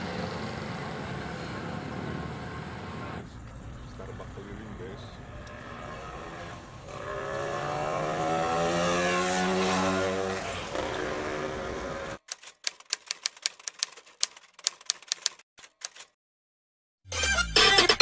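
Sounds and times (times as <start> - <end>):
vehicle engine passing: 0.0 - 12.2
typewriter key clicks: 12.2 - 16.1.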